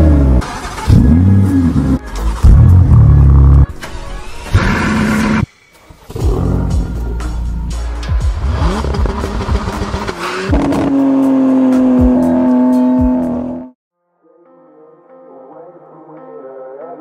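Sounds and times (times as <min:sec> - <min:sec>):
car engine revving: 0:00.0 - 0:03.7, 0:04.5 - 0:05.5, 0:06.2 - 0:13.8
music: 0:00.0 - 0:17.0.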